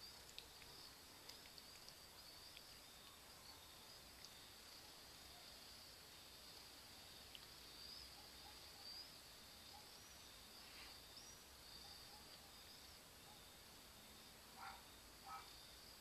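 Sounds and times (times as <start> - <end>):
tiny faint chirps: 0.0 - 5.6
steady high hiss: 0.0 - 16.0.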